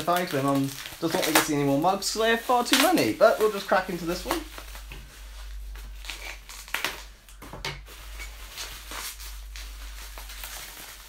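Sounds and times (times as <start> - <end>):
bubble wrap crackles: 0.0 - 11.0
bubble wrap crinkling: 0.0 - 11.0.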